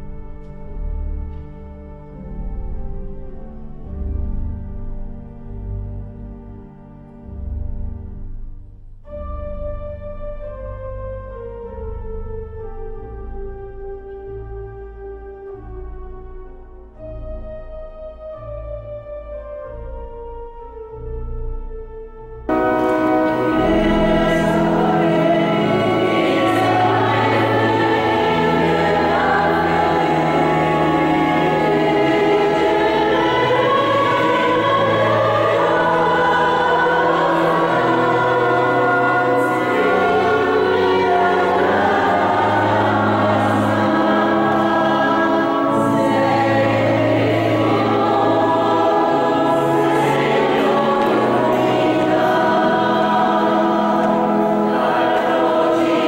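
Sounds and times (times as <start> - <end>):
choir singing a hymn: 22.5 - 56.0.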